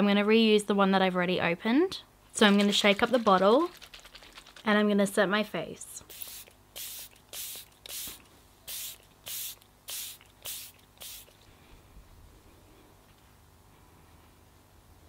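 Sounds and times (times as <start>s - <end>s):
spray bottle hissing spritzes: 6.1s - 11.4s.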